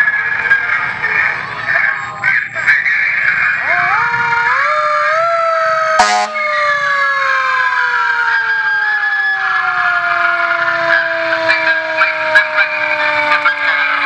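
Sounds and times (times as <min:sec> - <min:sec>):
fire engine siren winding down: 0:03.2 - 0:14.0
sharp horn blast: 0:06.0 - 0:06.6.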